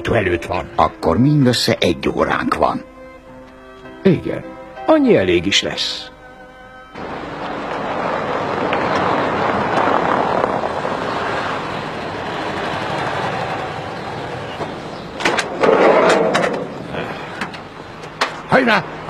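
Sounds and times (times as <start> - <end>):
van engine and tyres: 6.6 - 19.0
sliding door rattling open: 7.5 - 16.9.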